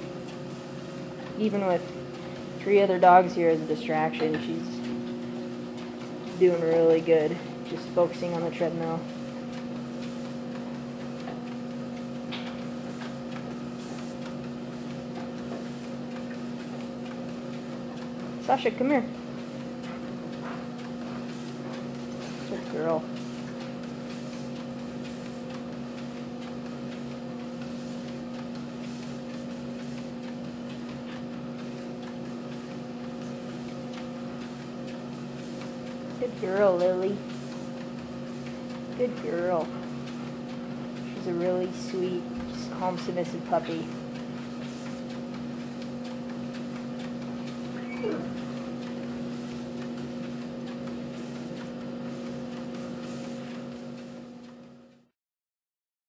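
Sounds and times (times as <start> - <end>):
treadmill humming: 0.0 - 55.1.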